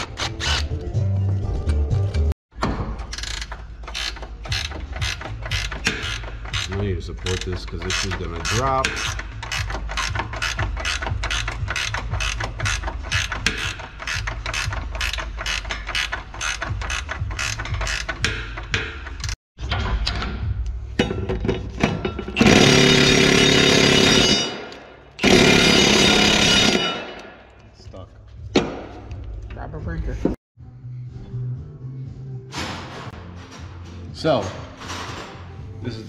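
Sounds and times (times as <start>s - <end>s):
ratchet wrench clicking: 3.1s - 19.4s.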